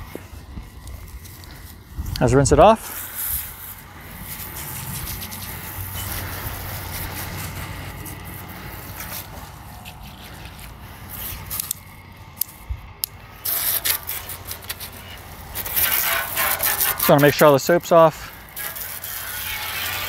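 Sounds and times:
hose spray on metal plate: 13.4 - 20.0.

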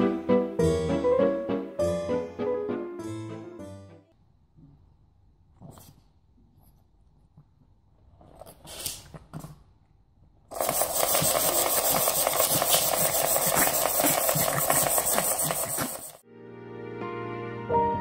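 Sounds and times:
dog rubbing on rug: 10.7 - 16.2.

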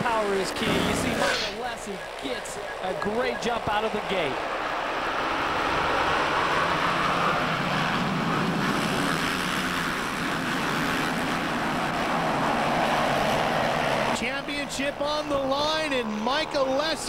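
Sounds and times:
motocross bikes at full throttle: 0.0 - 17.0.

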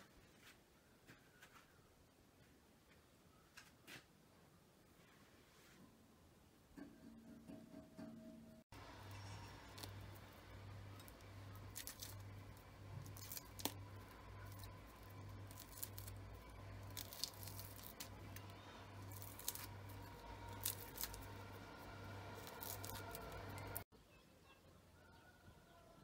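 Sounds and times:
low pulsing hum: 7.4 - 23.9
skin crackling and tearing: 9.1 - 23.8.

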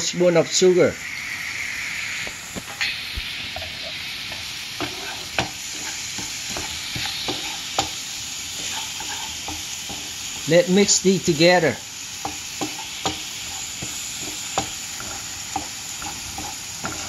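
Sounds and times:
food sizzling in a frying pan: 0.0 - 17.0
wooden spatula scraping a pan: 3.5 - 10.6, 12.2 - 17.0.

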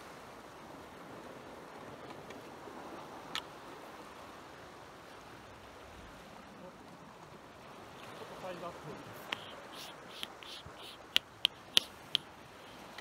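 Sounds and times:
wind: 0.0 - 13.0
sea water washing: 5.2 - 13.0
sharp click: 9.2 - 12.3.

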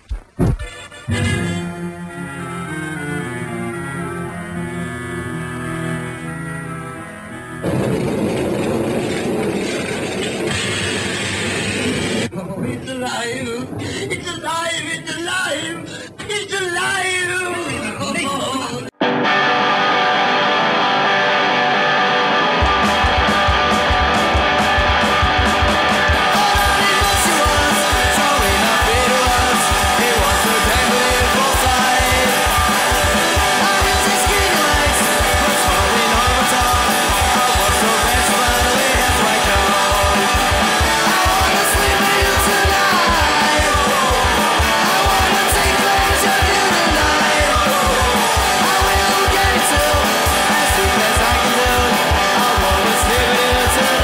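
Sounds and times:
bass: 0.0 - 12.3, 20.2 - 54.0
electric guitar: 0.0 - 12.3, 18.9 - 54.0
drum beat: 22.6 - 54.0.

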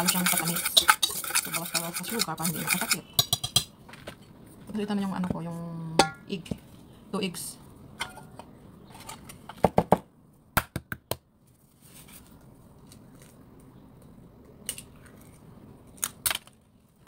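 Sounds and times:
eggs cracked over metal bowl: 0.0 - 3.8.

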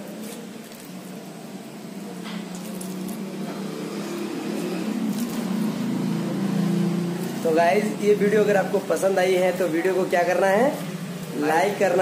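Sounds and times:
engine hum: 0.0 - 12.0
food deep-frying in oil: 0.0 - 12.0.

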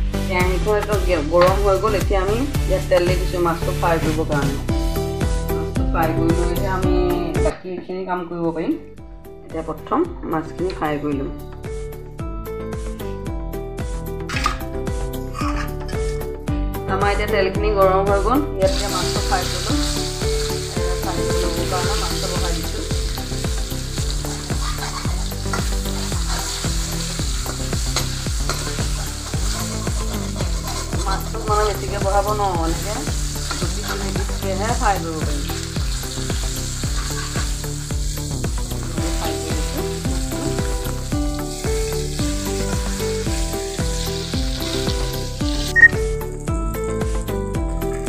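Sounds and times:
background music with beat: 0.0 - 7.6, 11.2 - 16.9, 35.8 - 48.0
fish sizzling in hot oil: 18.7 - 47.3
spoon stirring in pan: 24.4 - 26.7, 27.5 - 31.3, 36.7 - 37.9.

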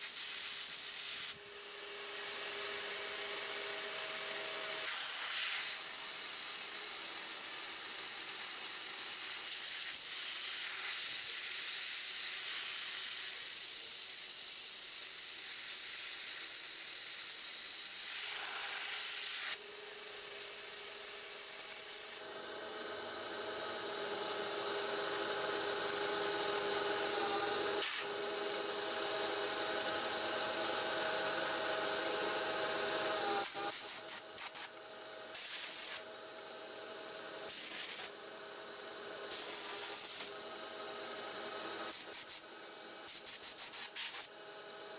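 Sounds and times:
metal lathe cutting hiss: 0.0 - 44.8
lathe machine whine: 1.4 - 9.4, 16.6 - 33.8, 34.7 - 43.1.

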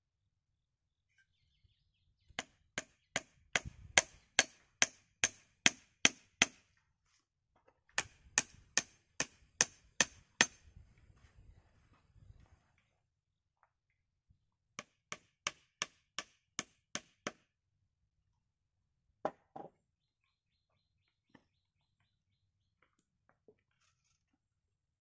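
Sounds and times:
hatchet chopping wooden pole: 2.4 - 6.7, 8.0 - 10.6, 14.8 - 17.5.

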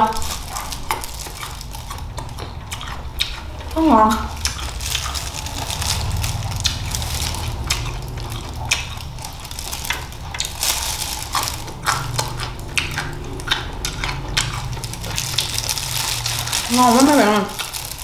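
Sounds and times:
crunchy chewing: 0.0 - 18.0.

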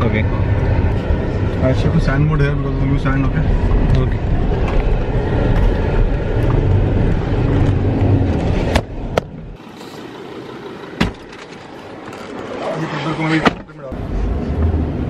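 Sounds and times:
engine and tyres rumbling: 0.0 - 15.0.

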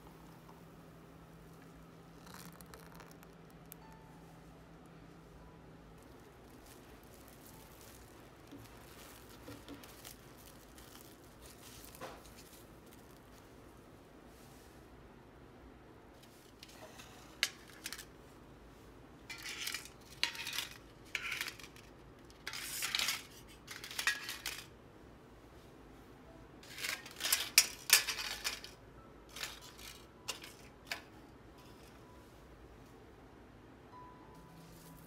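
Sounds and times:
aluminium foil cups crinkling: 2.1 - 4.0, 6.0 - 13.6, 16.2 - 18.2, 19.3 - 24.8, 26.6 - 32.0.

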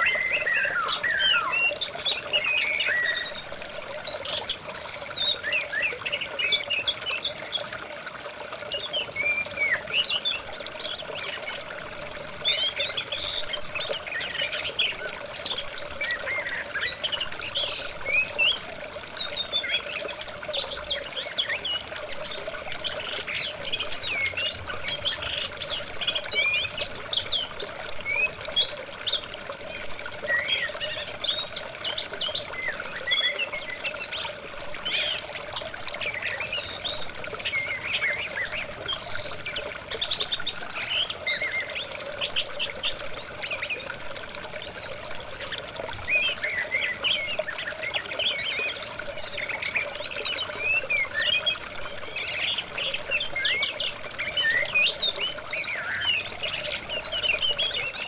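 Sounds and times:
running water: 0.0 - 58.0
small birds chirping: 0.0 - 58.0.

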